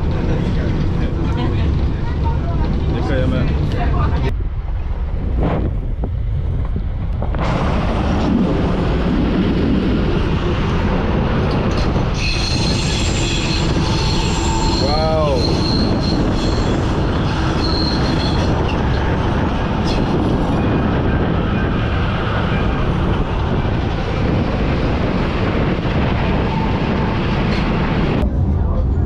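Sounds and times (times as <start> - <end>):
train carriage rumbling on rails: 0.0 - 29.0
wheels squealing on rails: 11.4 - 28.2.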